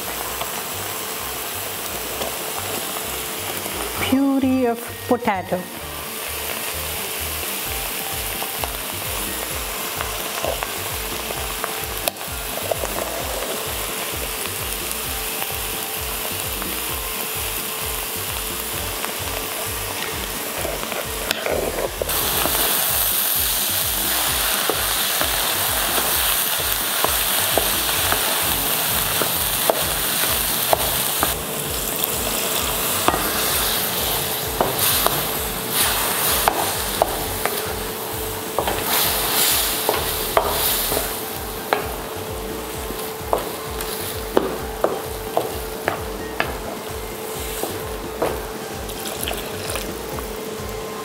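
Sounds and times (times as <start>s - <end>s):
vegetables sizzling in a pan: 0.0s - 51.0s
spatula tapping and scraping pan: 38.6s - 42.0s.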